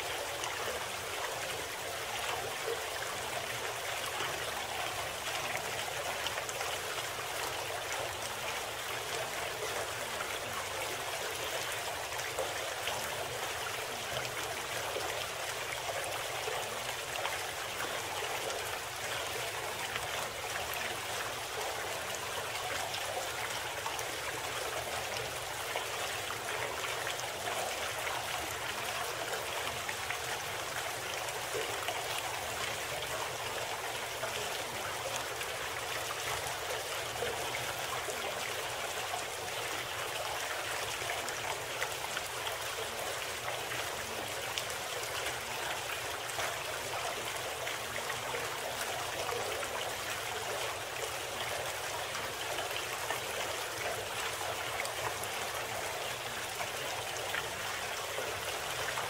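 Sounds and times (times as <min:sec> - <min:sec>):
trickling stream: 0:00.0 - 0:59.0.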